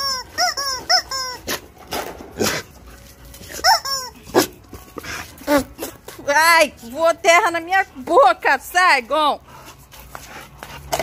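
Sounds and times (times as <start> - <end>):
squeaky toy squeaks: 0.0 - 1.8, 3.4 - 6.1
dogs scuffling and snuffling: 0.8 - 11.0.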